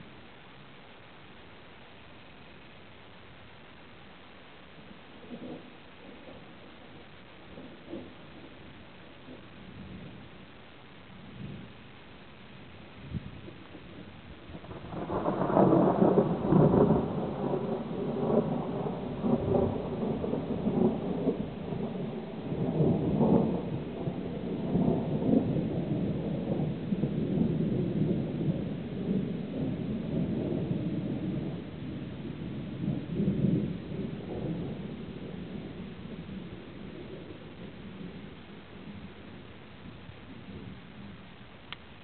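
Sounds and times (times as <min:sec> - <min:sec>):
rolling thunder: 0:13.0 - 0:41.1.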